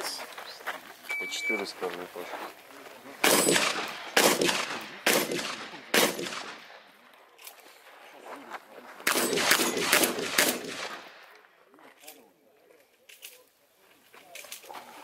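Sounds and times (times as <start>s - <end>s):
shotgun shots with echo: 3.2s - 6.8s, 9.0s - 11.2s.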